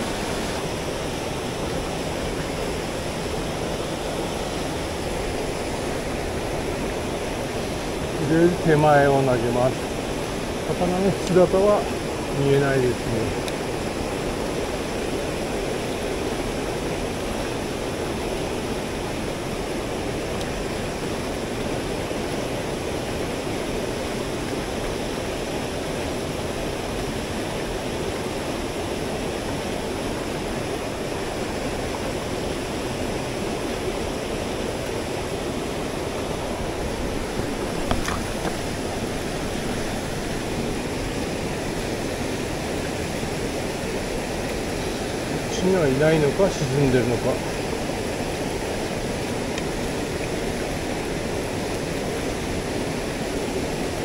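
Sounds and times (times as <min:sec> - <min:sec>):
stream rushing: 0:00.0 - 0:54.0.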